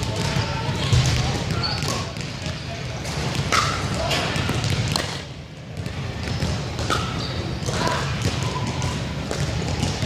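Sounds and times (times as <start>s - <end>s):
sneaker squeaks on wooden floor: 0.9s - 2.2s, 5.8s - 9.1s.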